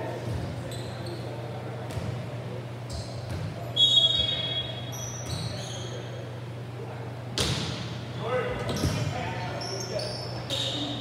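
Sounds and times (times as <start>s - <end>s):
short high squeaks: 9.6s - 11.0s.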